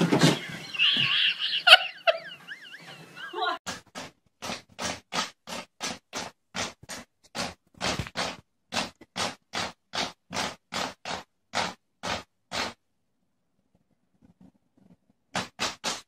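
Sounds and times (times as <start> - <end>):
cat claws scratching wood: 3.7 - 12.8, 14.4 - 16.0.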